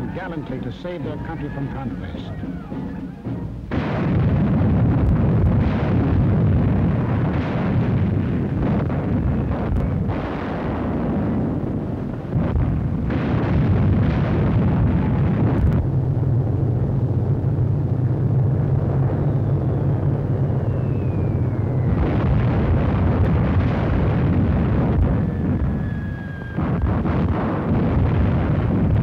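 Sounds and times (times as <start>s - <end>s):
artillery fire and exploding shells: 3.6s - 29.0s
explosion blast: 3.6s - 29.0s
falling shell whistle: 20.4s - 22.1s, 25.2s - 26.9s.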